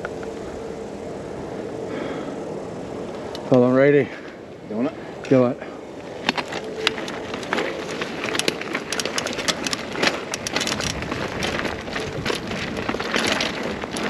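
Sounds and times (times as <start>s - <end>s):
bike rattling clicks and knocks: 5.2s - 14.0s
bike tyre rumble on rock: 6.0s - 14.0s.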